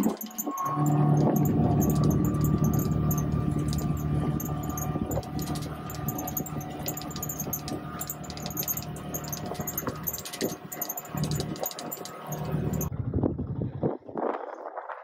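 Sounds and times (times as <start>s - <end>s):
light rattling: 0.0s - 12.9s
vehicle engine running: 0.0s - 12.9s
wind noise: 12.9s - 15.0s.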